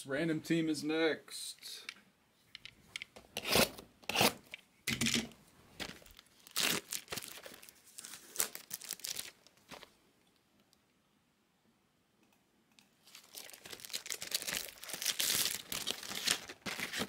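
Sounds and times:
wrapping tearing and crinkling: 5.8s - 10.0s, 13.0s - 17.0s.

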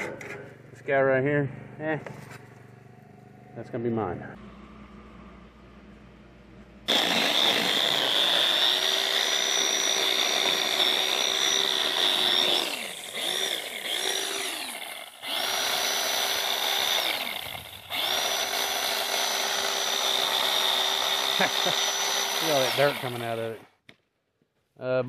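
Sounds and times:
battery chainsaw cutting: 6.9s - 23.8s.

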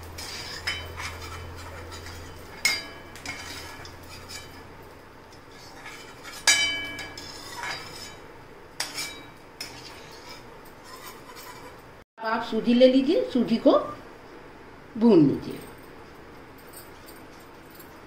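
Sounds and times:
metal spoon scraping a pan: 0.0s - 11.9s.

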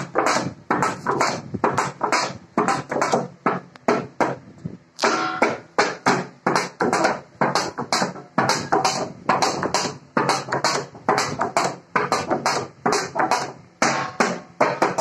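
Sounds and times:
metal plate struck by hand: 5.0s - 15.0s.

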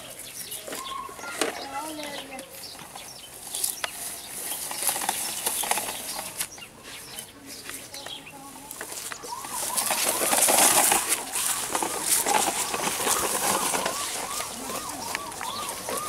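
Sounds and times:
outdoor background noise: 0.0s - 16.0s
young children babbling: 13.0s - 16.0s.

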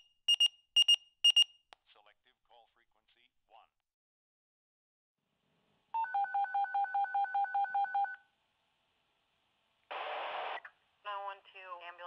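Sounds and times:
radio static burst: 9.9s - 10.7s.

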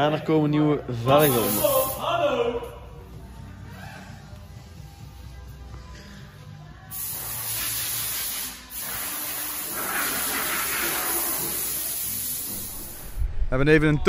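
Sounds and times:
pressurised spray hissing: 1.2s - 2.0s, 6.9s - 13.2s.

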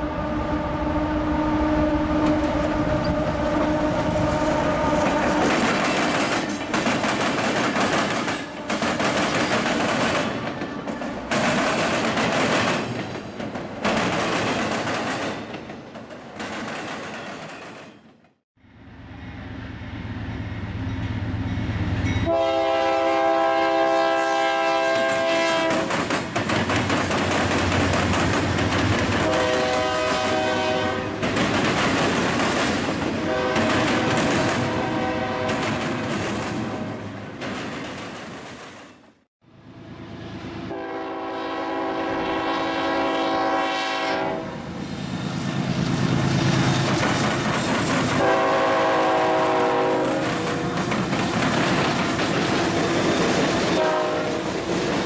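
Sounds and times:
locomotive horn: 0.0s - 5.8s, 22.2s - 25.9s, 29.2s - 31.3s, 33.1s - 35.8s, 40.6s - 44.7s, 48.1s - 50.9s, 53.6s - 54.7s.

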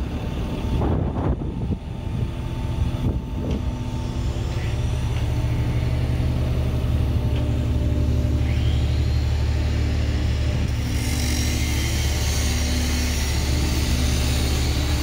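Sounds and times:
diesel engine humming: 0.0s - 15.0s.

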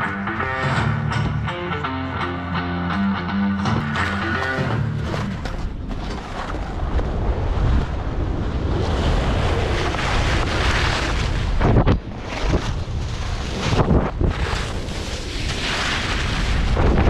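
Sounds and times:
skis scraping over snow: 5.0s - 17.0s
wind rushing over microphone: 5.7s - 17.0s.

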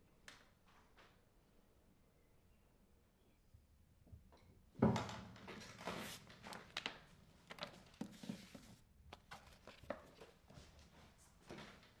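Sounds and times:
paper rustling and flapping: 5.4s - 10.9s.

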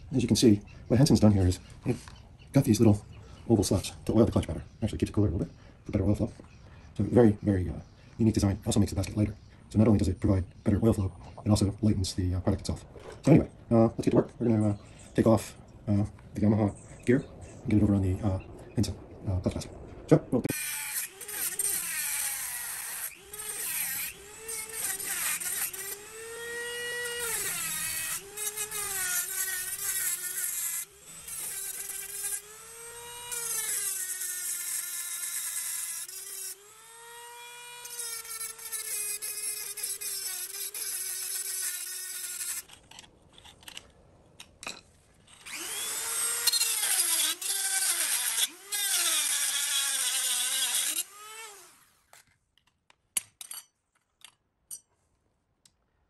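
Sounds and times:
rotary tool grinding metal: 20.5s - 44.0s, 44.6s - 52.2s.

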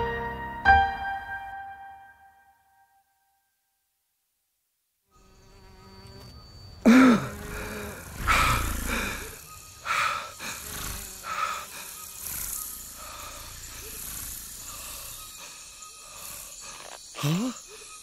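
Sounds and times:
buzzing insects: 5.1s - 18.0s
loud animal calls: 6.9s - 17.6s.

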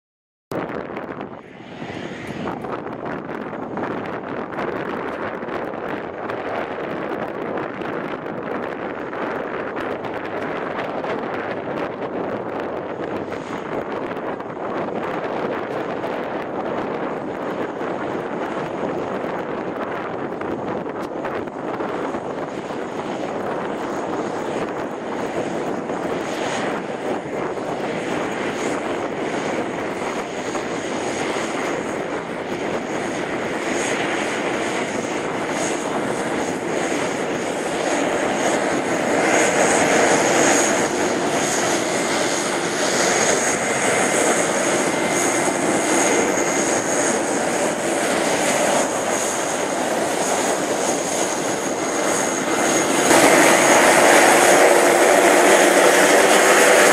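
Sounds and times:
propeller drone: 0.5s - 56.9s
high turbine whine: 0.6s - 56.9s.

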